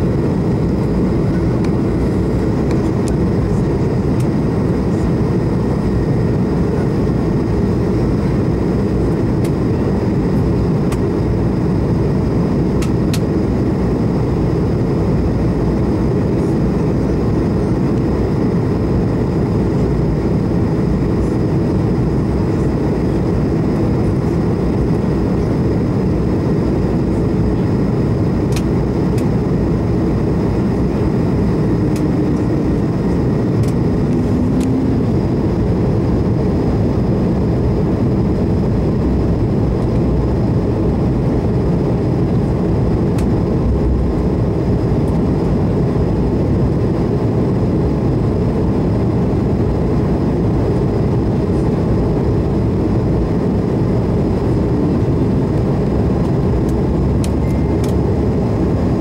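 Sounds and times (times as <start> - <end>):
air rushing over plane fuselage: 0.0 - 59.0
jet engines humming: 0.0 - 59.0
faint high whine: 54.2 - 59.0.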